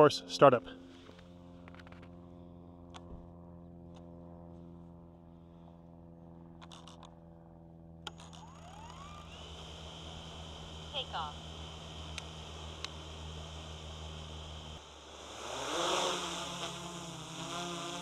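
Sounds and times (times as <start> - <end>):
faint low hum: 0.0 - 17.2
drone motors whining: 8.0 - 18.0
sharp clicks: 12.1 - 13.0.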